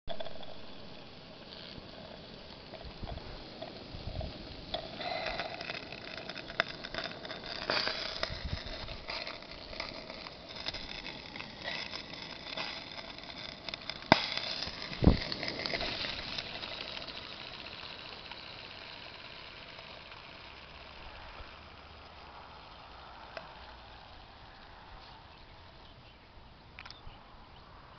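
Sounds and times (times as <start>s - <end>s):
steam hissing: 0.9s - 5.9s.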